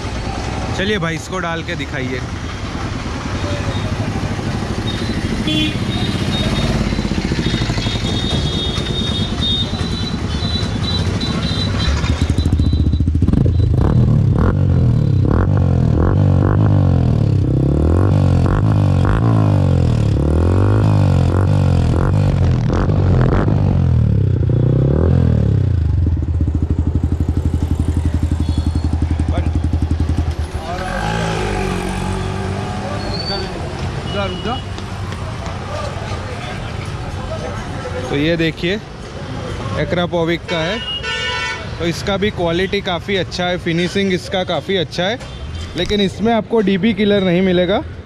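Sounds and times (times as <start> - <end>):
motorcycle engine revving: 2.3 - 33.8.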